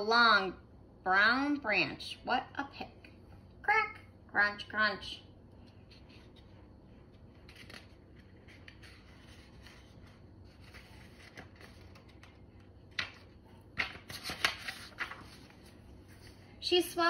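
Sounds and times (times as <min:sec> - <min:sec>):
paper pages rustling: 0:05.7 - 0:16.5
sharp paper crackles: 0:13.8 - 0:15.6.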